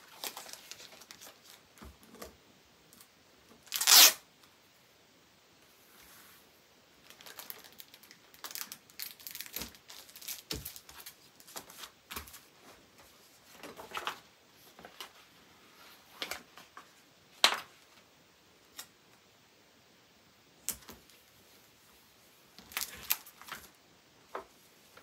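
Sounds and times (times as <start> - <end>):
paper rustling and crinkling: 0.0 - 2.3, 7.0 - 18.0, 22.6 - 25.0.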